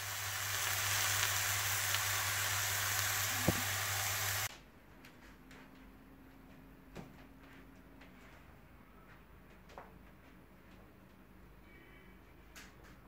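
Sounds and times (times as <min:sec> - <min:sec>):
meat sizzling in a pan: 0:00.0 - 0:04.5.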